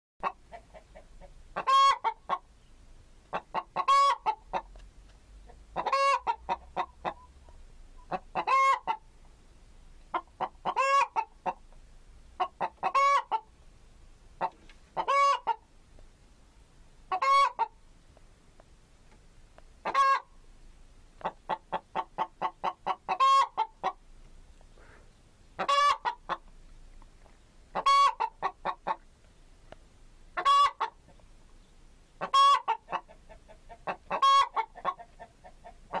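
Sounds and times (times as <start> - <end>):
chicken clucking: 0.2 - 2.6, 3.2 - 4.8, 5.4 - 9.1, 10.0 - 13.5, 14.4 - 15.7, 17.1 - 17.8, 19.8 - 20.3, 21.2 - 24.0, 25.6 - 26.5, 27.3 - 29.1, 30.4 - 31.3, 32.2 - 36.0.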